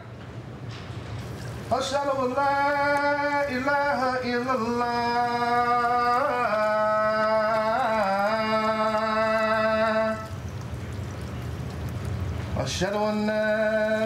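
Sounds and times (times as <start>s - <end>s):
man chanting: 1.7s - 10.3s, 12.6s - 14.0s.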